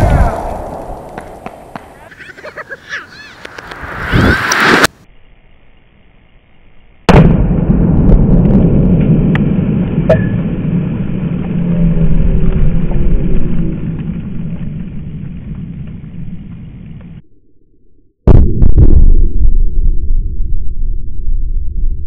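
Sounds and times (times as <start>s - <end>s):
explosion with low rumble: 7.1s - 17.2s, 18.2s - 22.0s.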